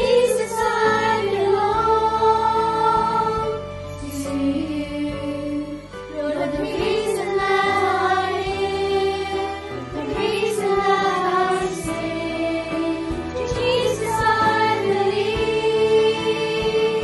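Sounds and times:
children's choir singing: 0.0 - 17.0.

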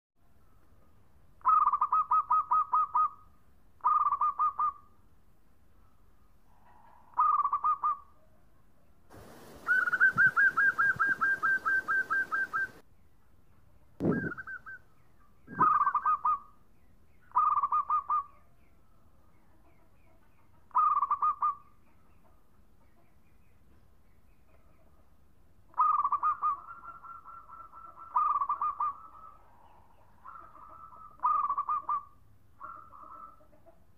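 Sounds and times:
dove cooing: 1.4 - 3.1, 7.1 - 8.0, 9.2 - 12.8, 14.0 - 14.8, 15.5 - 16.4, 17.4 - 18.3, 20.8 - 21.6, 25.7 - 29.4.

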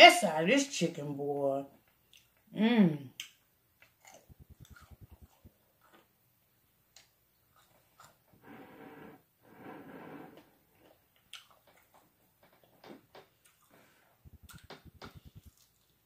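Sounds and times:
chewing food: 1.8 - 2.5, 3.2 - 6.1, 6.9 - 8.3, 10.7 - 16.0
soft breathy noises: 13.5 - 15.6.

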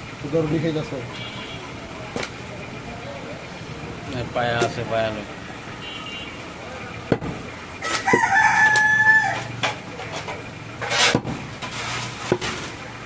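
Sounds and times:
rooster crowing: 7.8 - 9.6.

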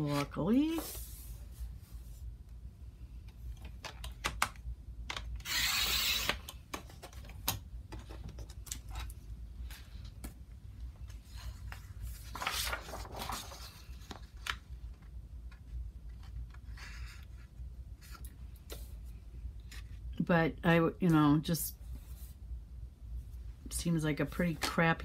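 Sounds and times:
paper rustling: 11.0 - 17.4.

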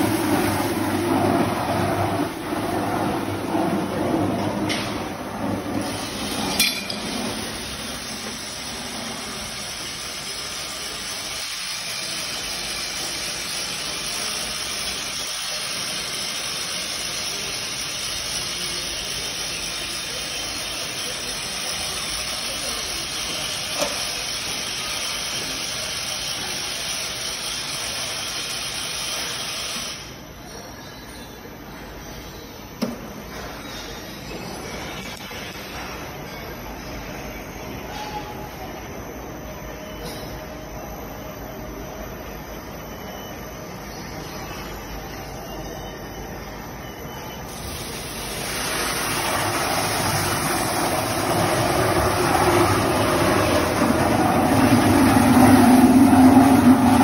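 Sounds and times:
mixer motor hissing: 47.5 - 57.0.

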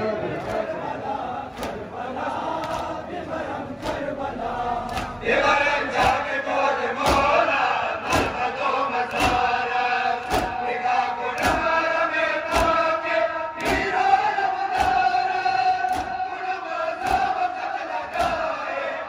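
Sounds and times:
men chanting in unison: 0.0 - 19.0.

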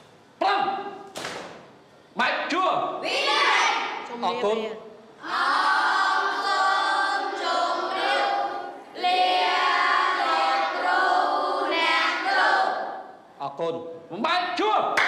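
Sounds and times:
boys singing in unison: 5.2 - 13.2.

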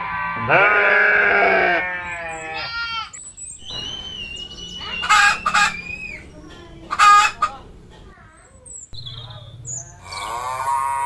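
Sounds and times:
sheep bleating: 0.0 - 3.1, 10.0 - 11.0
thin high whistling call: 3.5 - 6.3
hens squawking clucks: 4.8 - 6.3, 6.9 - 7.7.

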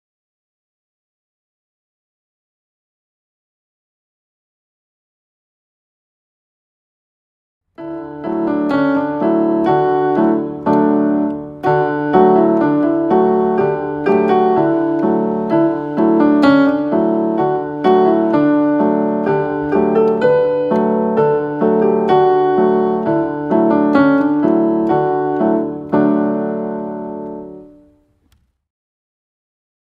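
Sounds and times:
piano keyboard playing a melody: 7.8 - 28.1.

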